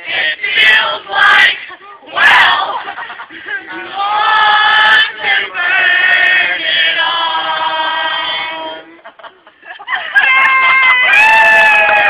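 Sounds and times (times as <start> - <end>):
group singing together: 0.0 - 9.0.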